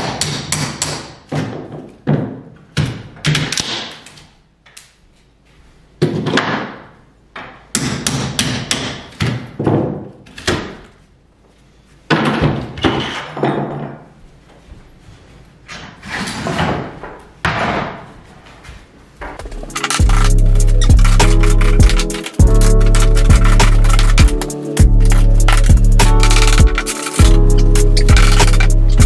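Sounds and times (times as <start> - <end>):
boards cracking and scraping: 19.4 - 29.0.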